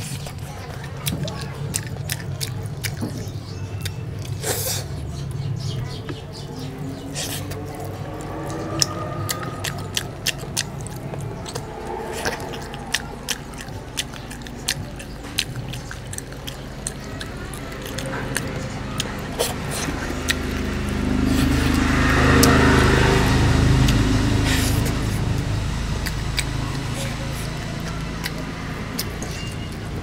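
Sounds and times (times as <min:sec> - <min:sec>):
low rumble: 0:00.0 - 0:30.0
person chewing food: 0:00.0 - 0:30.0
wet mouth clicks and smacks: 0:01.0 - 0:04.8, 0:26.0 - 0:29.9.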